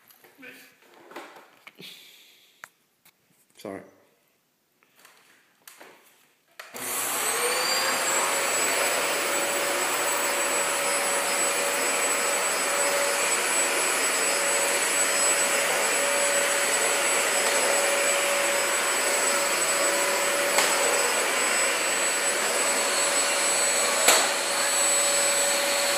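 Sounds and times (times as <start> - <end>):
electric appliance motor whine: 6.8 - 25.9.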